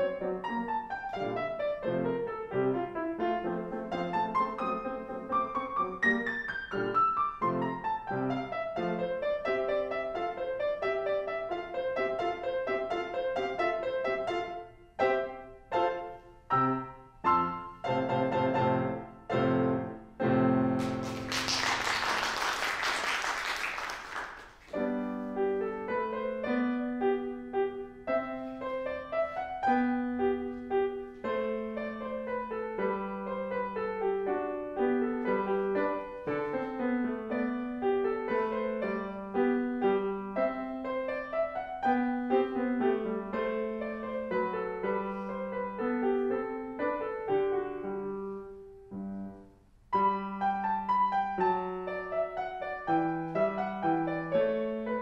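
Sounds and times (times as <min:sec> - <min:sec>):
grand piano playing: 0:00.0 - 0:55.0
audience applause: 0:20.8 - 0:24.7.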